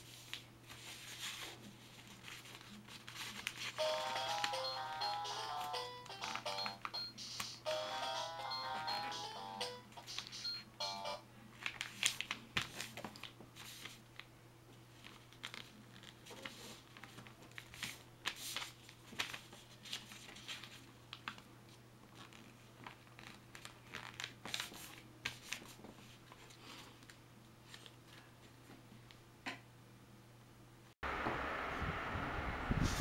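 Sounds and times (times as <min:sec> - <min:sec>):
paper crinkling while folded: 0:00.0 - 0:07.6, 0:11.5 - 0:28.4.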